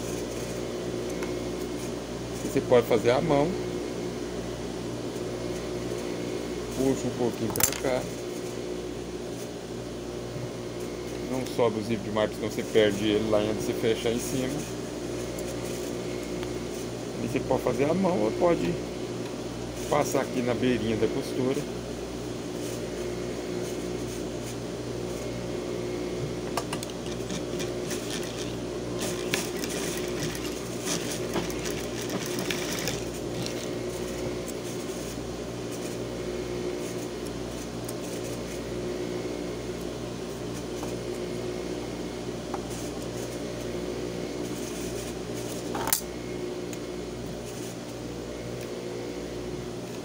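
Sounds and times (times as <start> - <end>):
sewing machine humming: 27.0 - 35.2.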